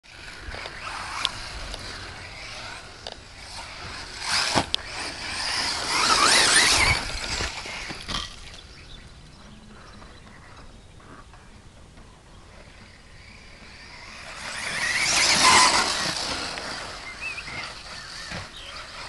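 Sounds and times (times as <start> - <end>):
tyres scrabbling on dirt: 0.1 - 8.8, 12.6 - 19.0
electric motor whine: 0.1 - 10.6, 12.5 - 19.0.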